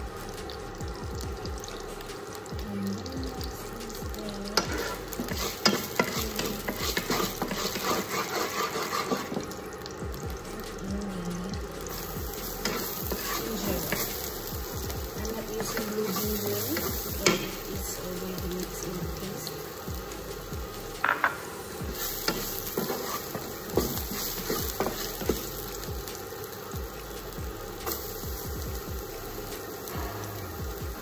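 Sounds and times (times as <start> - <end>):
garlic sizzling in hot oil: 0.0 - 31.0
spatula tapping and scraping pan: 4.6 - 9.6, 21.0 - 21.4, 22.2 - 25.4.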